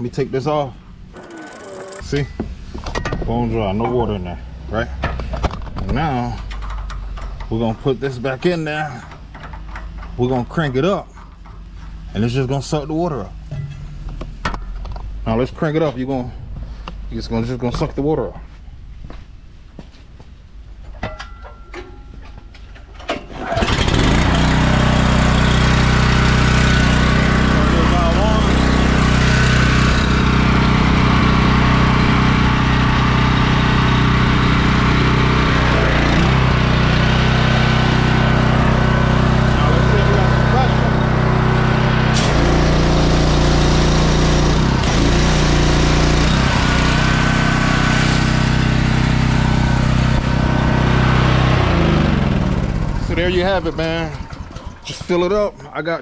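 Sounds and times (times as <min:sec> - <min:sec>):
pressure washer engine starting: 0:01.2 - 0:02.2, 0:23.0 - 0:55.4.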